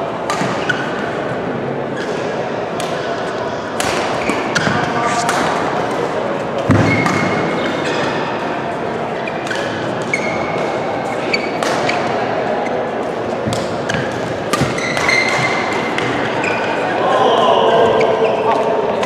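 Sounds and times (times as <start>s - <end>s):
large hall background noise: 0.0s - 19.0s.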